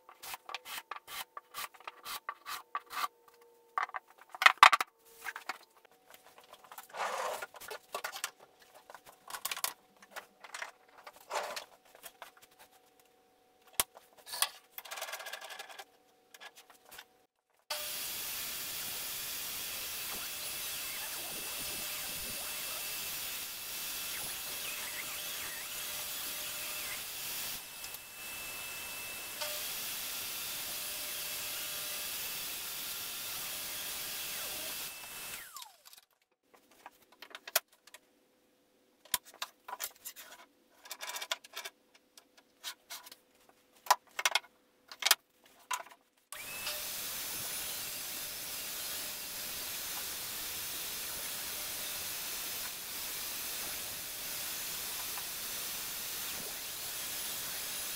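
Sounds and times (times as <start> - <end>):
dust extraction hiss: 17.7 - 30.7, 46.4 - 57.9
table saw running: 17.7 - 35.8, 46.4 - 57.9.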